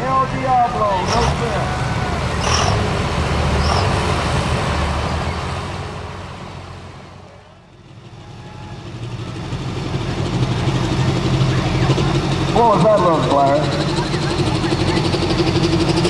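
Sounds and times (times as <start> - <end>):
diesel pickup engine running: 0.0 - 16.0
heavy diesel truck engine: 0.0 - 16.0.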